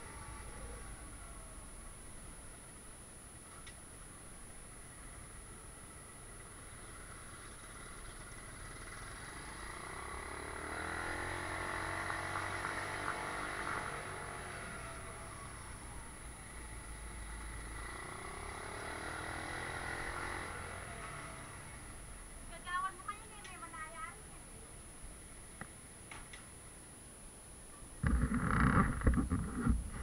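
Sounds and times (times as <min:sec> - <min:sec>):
motorcycle engine running: 0:04.8 - 0:16.6, 0:28.0 - 0:30.0.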